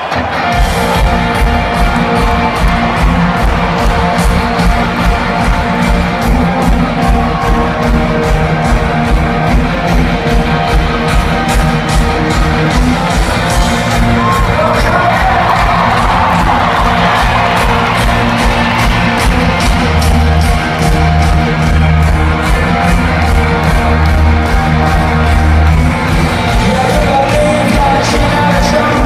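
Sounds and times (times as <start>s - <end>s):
crowd shouting: 0.0s - 8.5s, 14.1s - 26.0s
loud amplified music with beat: 0.0s - 29.0s.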